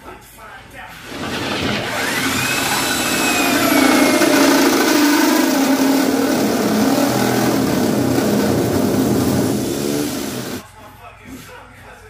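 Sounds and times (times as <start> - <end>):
power drill cutting sheet metal: 1.1 - 10.6.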